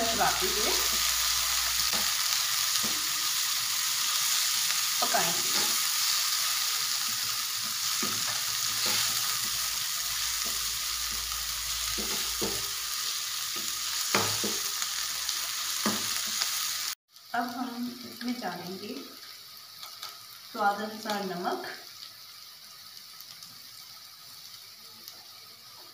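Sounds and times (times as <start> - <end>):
vegetables sizzling in hot oil: 0.0 - 25.9
spatula scraping pan: 5.1 - 11.3.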